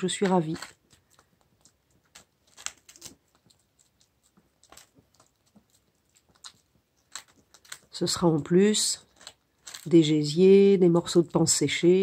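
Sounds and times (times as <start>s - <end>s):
dog chewing crunchy treat: 0.0s - 10.1s.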